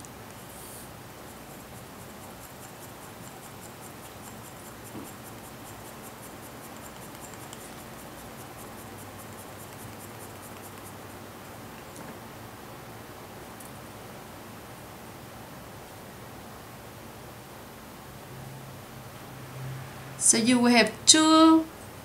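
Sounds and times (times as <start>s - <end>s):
paper scratchy ticking: 1.2s - 11.2s.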